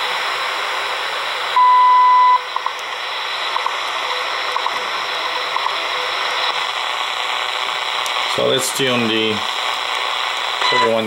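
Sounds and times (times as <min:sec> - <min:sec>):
radio static hiss: 0:00.0 - 0:11.0
loud radio beep: 0:01.5 - 0:02.8, 0:03.6 - 0:06.7, 0:09.4 - 0:11.0.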